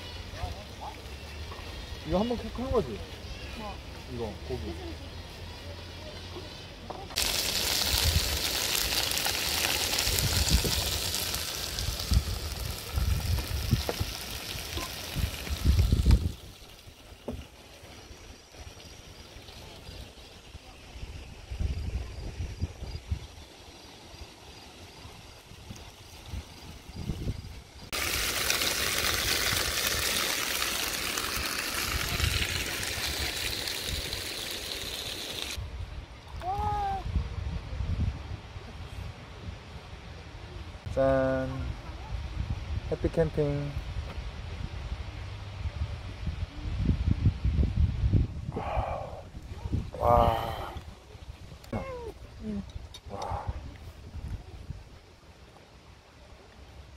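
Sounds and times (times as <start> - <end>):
meat sizzling in a pan: 7.2 - 16.7, 27.8 - 35.6.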